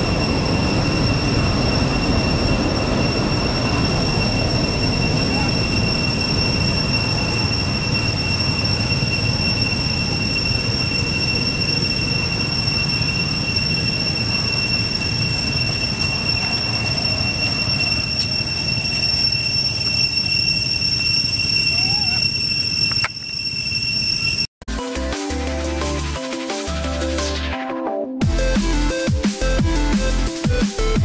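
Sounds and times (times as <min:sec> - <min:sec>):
high-pitched insect drone: 0:00.0 - 0:24.5.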